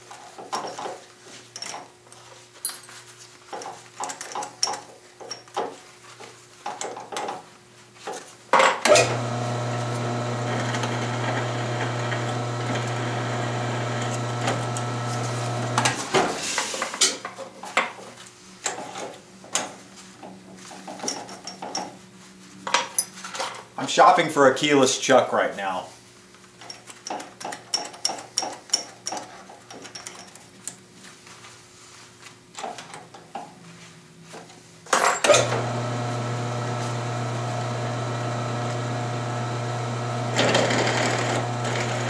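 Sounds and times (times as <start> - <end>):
drill cutting into steel: 8.9 - 15.9, 35.3 - 42.0
drill press motor humming: 8.9 - 16.0, 35.3 - 42.0.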